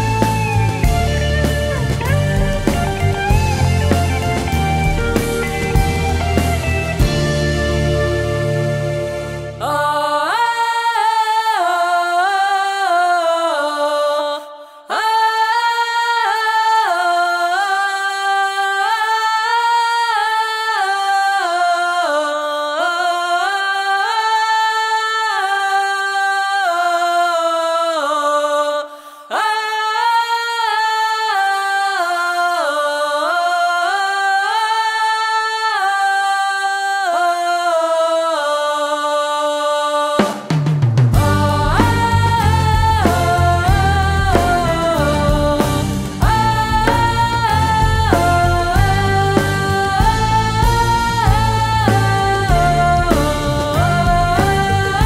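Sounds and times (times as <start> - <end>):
band playing: 0.0 - 9.9, 40.4 - 55.0
women singing in harmony: 8.6 - 55.0.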